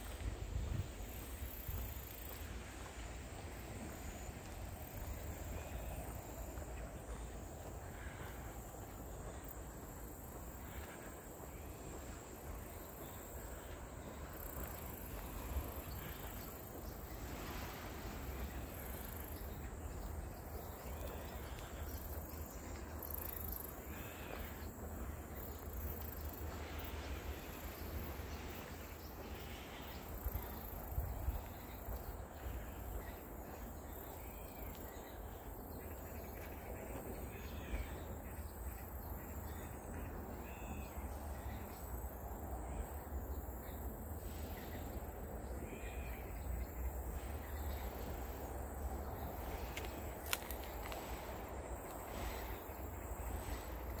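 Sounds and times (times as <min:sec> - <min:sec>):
grass rustling in wind: 0:00.0 - 0:36.4, 0:37.2 - 0:54.0
wind rumble on microphone: 0:00.1 - 0:02.0.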